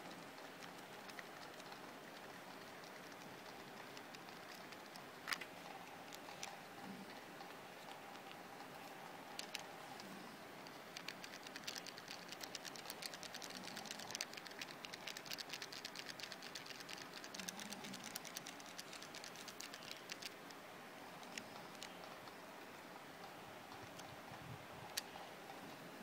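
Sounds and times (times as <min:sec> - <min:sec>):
calculator keys clicking: 0:00.2 - 0:05.4, 0:10.9 - 0:20.6.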